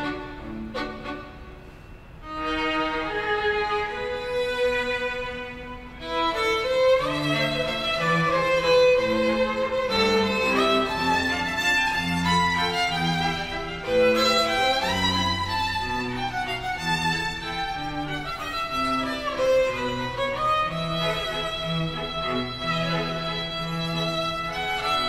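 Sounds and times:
string quartet playing: 0.0 - 25.0.

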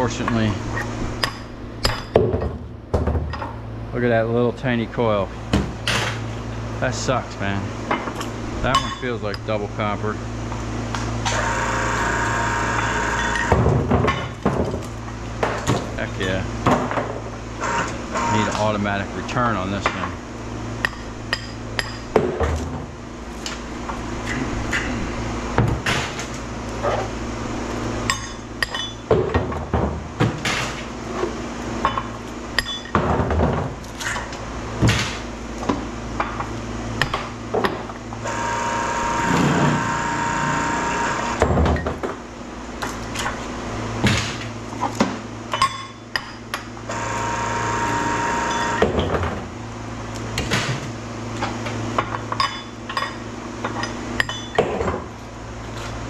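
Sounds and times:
steady low hum: 0.0 - 56.0
hydraulic pump whine: 10.9 - 13.7, 17.6 - 18.8, 37.6 - 41.9, 46.8 - 49.2.

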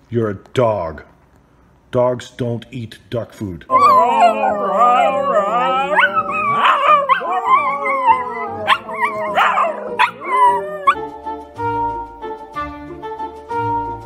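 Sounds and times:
dogs howling: 3.7 - 11.1
background music: 3.7 - 14.0.

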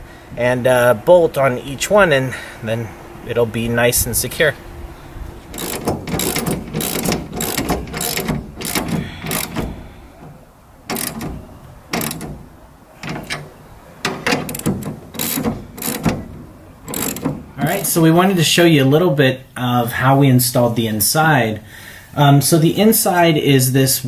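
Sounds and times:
ratchet wrench clicking: 5.5 - 9.8, 10.9 - 12.4, 14.0 - 16.3, 16.9 - 17.9.

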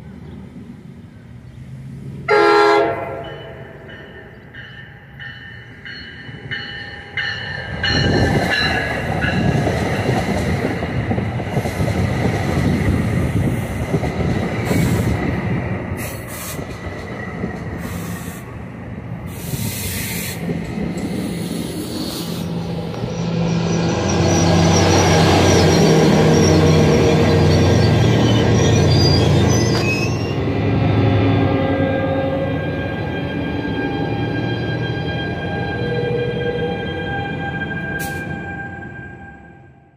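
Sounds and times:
train wheels rumbling on rails: 3.2 - 38.6
locomotive engine drone: 12.0 - 39.9
high wheel squeal: 19.3 - 30.5.

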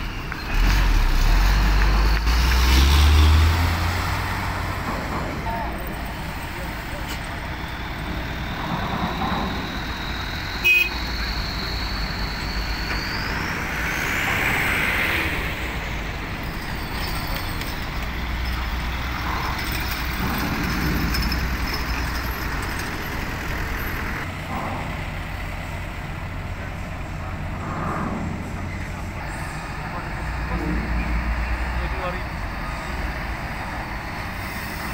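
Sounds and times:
trucks and bus engines running: 0.0 - 34.9
high brake squeal: 5.8 - 24.9.

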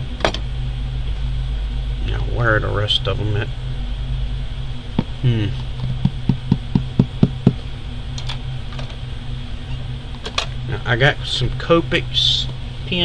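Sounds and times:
steady low hum: 0.0 - 13.0
hands tapping cardboard box: 6.0 - 7.6.

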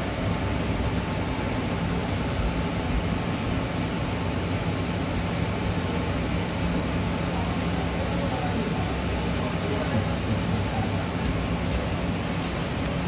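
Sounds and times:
low machine hum: 0.0 - 13.0
torch flame hissing: 4.9 - 13.0.

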